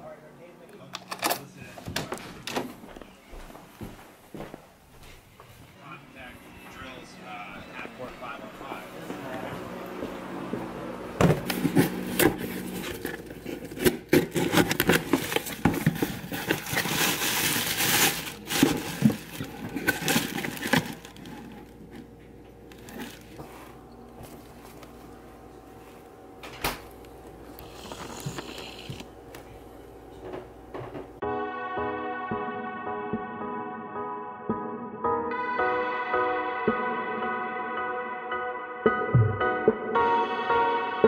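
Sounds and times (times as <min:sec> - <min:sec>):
music: 0:05.7 - 0:11.6, 0:31.2 - 0:41.0
cardboard box being unpacked: 0:11.2 - 0:22.1, 0:22.7 - 0:24.9.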